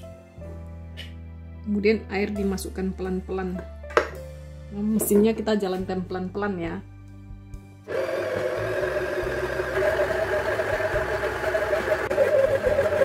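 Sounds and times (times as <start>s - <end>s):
stand mixer motor running: 7.9s - 13.0s.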